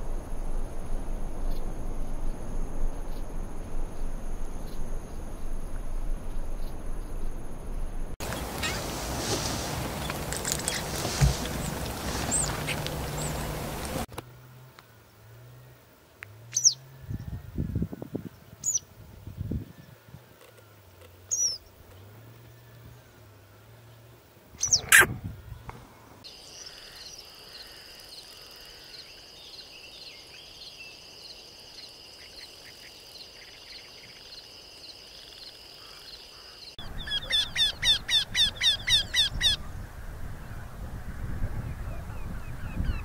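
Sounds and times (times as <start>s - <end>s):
small songbirds calling: 8.2s - 14.0s, 16.5s - 23.2s, 23.8s - 39.6s
bird trilling: 24.6s - 25.2s, 35.8s - 39.6s.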